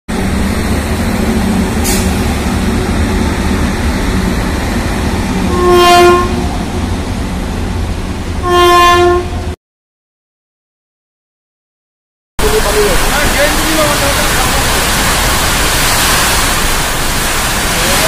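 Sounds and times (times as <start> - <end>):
freight train rumbling past: 0.1 - 9.6, 12.4 - 18.0
locomotive horn blasts: 5.5 - 6.5, 8.4 - 9.6.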